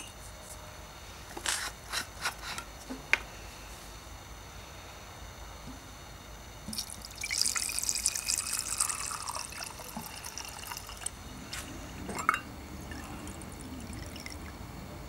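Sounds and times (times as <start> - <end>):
liquid dripping: 6.7 - 11.2, 12.0 - 14.6
liquid pouring into glass jar: 6.7 - 11.2, 12.0 - 14.6.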